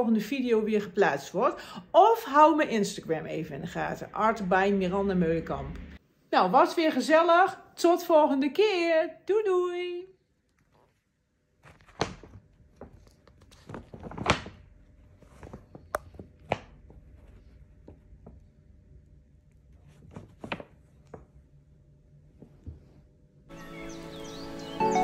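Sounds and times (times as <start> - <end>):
paper crackling under cat: 11.6 - 17.9, 19.7 - 21.1
music: 23.5 - 25.0.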